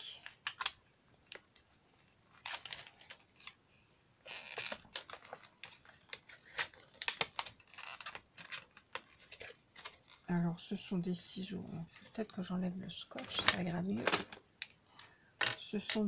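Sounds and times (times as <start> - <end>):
plastic pouch crinkling: 2.3 - 3.6, 4.2 - 10.3.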